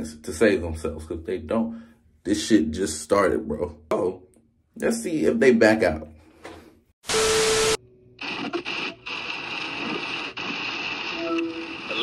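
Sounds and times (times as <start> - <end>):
static hiss: 7.2 - 12.0.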